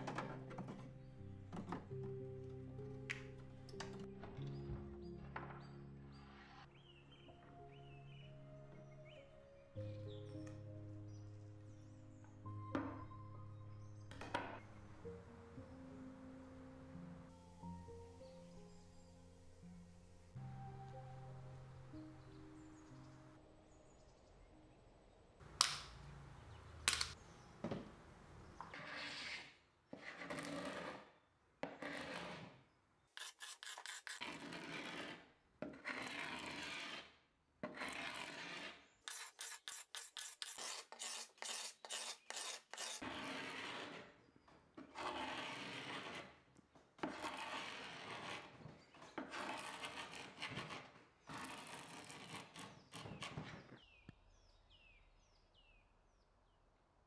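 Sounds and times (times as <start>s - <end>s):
paint scraper rasping on wood: 33.2s - 44.2s, 44.9s - 46.4s, 47.0s - 53.6s.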